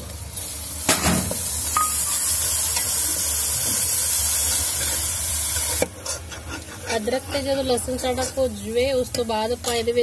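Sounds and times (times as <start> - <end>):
food sizzling in hot oil: 0.0 - 10.0
ladle stirring in pan: 1.8 - 8.7.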